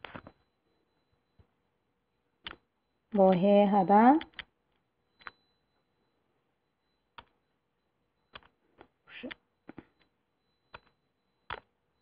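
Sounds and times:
stylus clicking on tablet: 0:02.4 - 0:03.5, 0:04.1 - 0:05.4, 0:07.1 - 0:07.4, 0:08.3 - 0:11.8.

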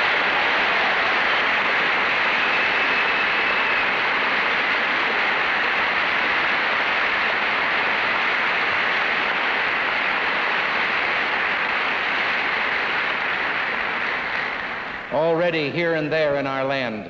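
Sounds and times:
audience applauding: 0:00.0 - 0:15.4.

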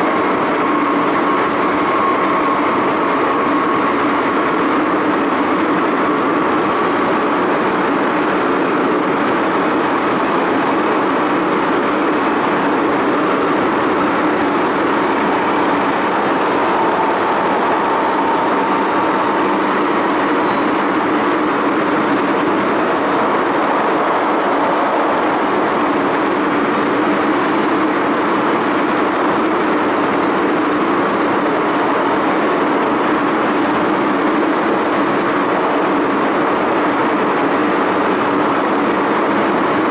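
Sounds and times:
train rumble and air rush: 0:00.0 - 0:39.9
faint whine: 0:11.9 - 0:29.3.

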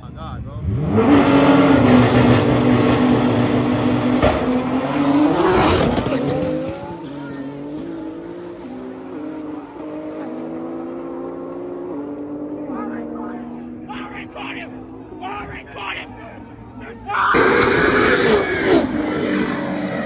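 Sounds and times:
race car engines revving: 0:00.0 - 0:20.0
engines shifting up through gears: 0:00.4 - 0:13.9, 0:17.3 - 0:20.0.

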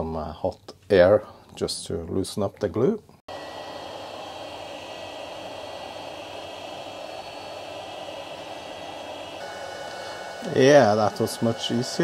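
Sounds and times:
hot air gun blowing: 0:03.3 - 0:12.0.

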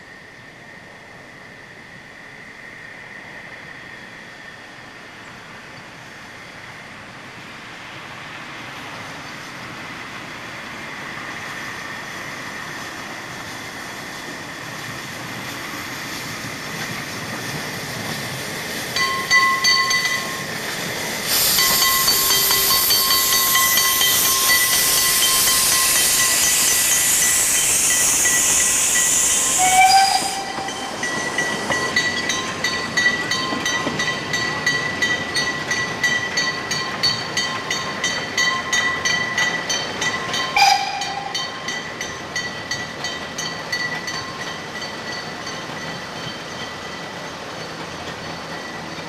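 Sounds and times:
loud steam hiss: 0:00.0 - 0:49.0
steam locomotive passing: 0:00.0 - 0:49.0
thin high ringing tones: 0:19.0 - 0:20.5, 0:21.5 - 0:49.0.

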